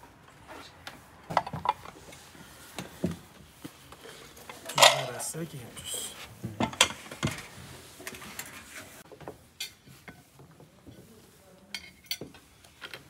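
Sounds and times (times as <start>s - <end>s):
porcelain dishes clinking: 4.7s - 5.2s.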